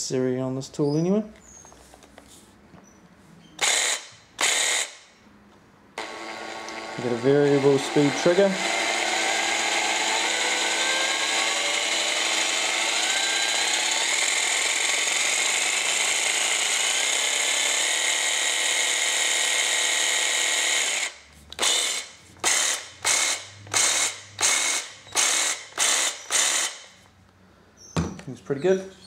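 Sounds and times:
jigsaw running: 3.6 - 5.0, 6.0 - 26.9.

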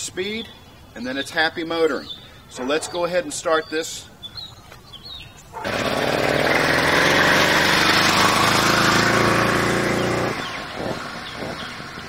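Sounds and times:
small two-stroke engine buzzing: 5.6 - 12.0.

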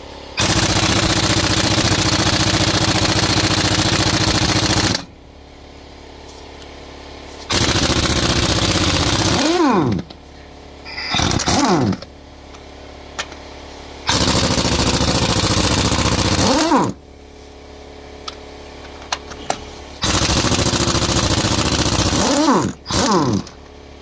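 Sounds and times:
impact wrench running: 0.4 - 5.1, 7.4 - 10.2, 10.8 - 12.6, 14.0 - 17.0, 18.2 - 23.7.

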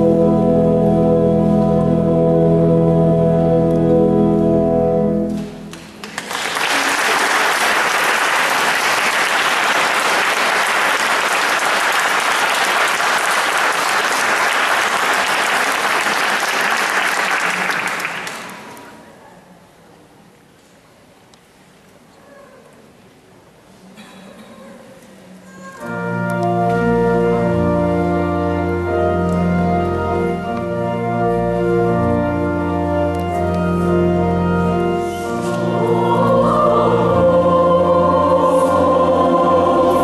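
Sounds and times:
audience applause: 5.8 - 19.0
choir singing with keyboard: 34.2 - 40.0.

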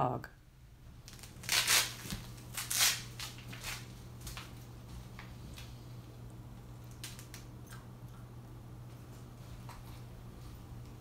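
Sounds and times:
low steady hum: 0.0 - 11.0
velcro ripping: 1.0 - 3.9.

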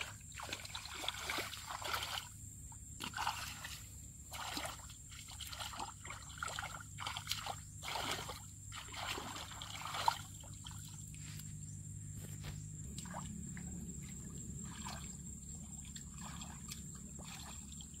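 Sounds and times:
muddy water sloshing: 0.0 - 11.5, 12.3 - 18.0
low hum: 9.6 - 18.0.

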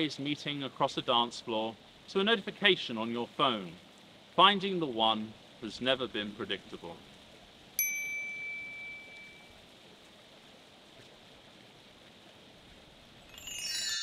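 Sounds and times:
faint steady hiss: 0.0 - 14.0
bright ding: 7.8 - 9.5
shimmering high bell chime: 7.8 - 9.5, 13.3 - 14.0.

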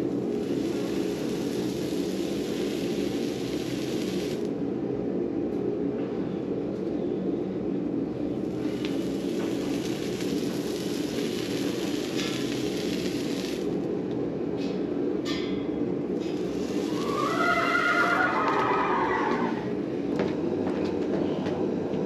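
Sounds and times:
steady low hum: 0.0 - 22.0
hot horseshoe hissing: 0.1 - 4.5, 8.4 - 13.8, 16.2 - 19.6
horse whinnying: 17.0 - 19.7.

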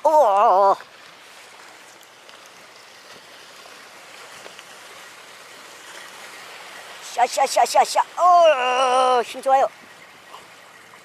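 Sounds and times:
sea water washing against concrete: 0.0 - 11.0
faint ticks: 1.9 - 3.2.

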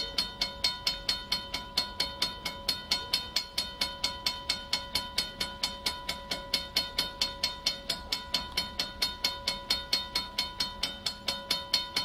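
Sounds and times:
railroad crossing bell clanging: 0.0 - 12.0.

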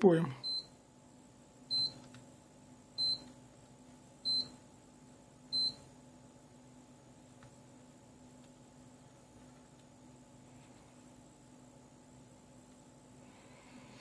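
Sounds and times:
electronic beeper beeps: 0.4 - 0.7.

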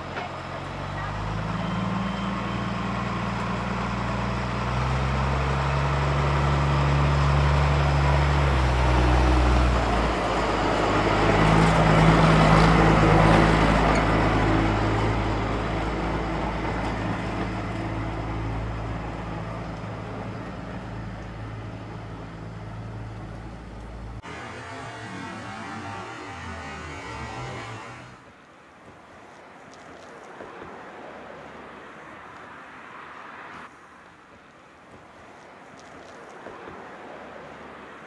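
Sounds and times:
diesel locomotive passing: 0.0 - 28.3.

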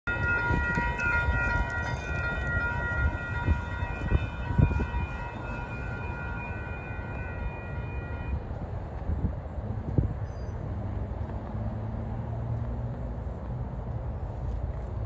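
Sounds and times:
high ringing tone: 0.1 - 8.4
freight train rumble: 0.1 - 15.0.

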